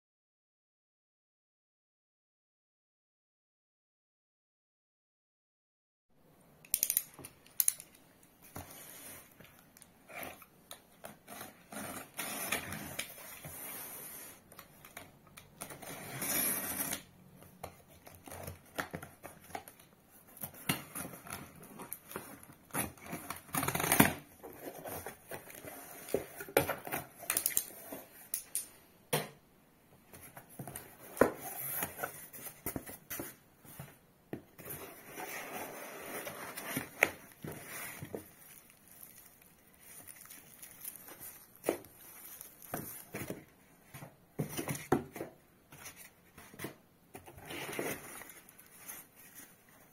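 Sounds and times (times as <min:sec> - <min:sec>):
plastic wrap and foam rustling: 0:34.9 - 0:43.9.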